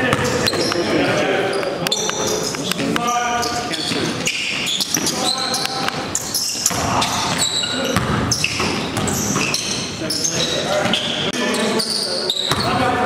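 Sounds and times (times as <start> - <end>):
basketball bouncing: 0.0 - 0.8, 5.7 - 9.7
sneakers squeaking on floor: 0.0 - 13.0.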